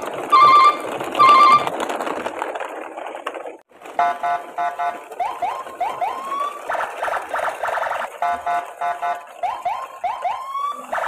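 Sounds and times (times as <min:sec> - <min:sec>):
car alarm beeps and whoops: 0:00.4 - 0:01.7, 0:04.0 - 0:11.0.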